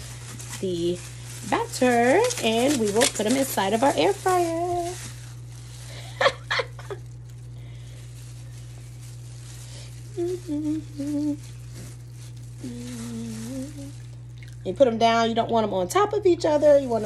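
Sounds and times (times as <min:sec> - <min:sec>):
gloved hands rustling: 0:00.0 - 0:14.3
low electrical hum: 0:00.0 - 0:17.0
person humming: 0:10.0 - 0:12.0, 0:12.6 - 0:14.0.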